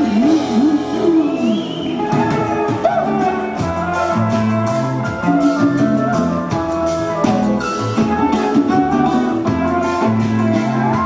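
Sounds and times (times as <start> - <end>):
live reggae band playing: 0.0 - 11.0.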